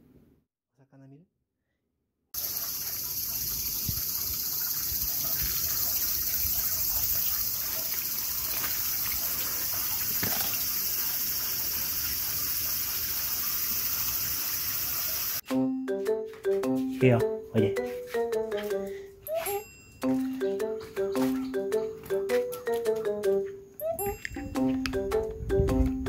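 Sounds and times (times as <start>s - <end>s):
high-pitched insect chorus: 2.4s - 15.4s
water running from a hose: 2.4s - 15.4s
water splashing: 2.4s - 15.4s.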